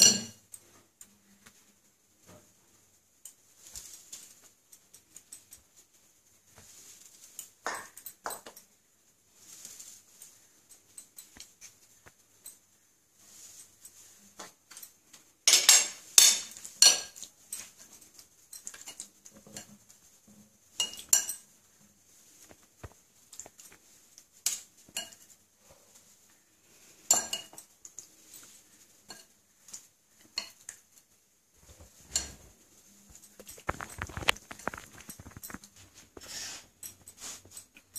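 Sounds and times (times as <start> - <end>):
spoons clinking on glass plates: 0.0 - 0.6, 7.4 - 8.7, 13.3 - 19.8, 20.7 - 21.6, 24.4 - 25.4, 26.9 - 30.8.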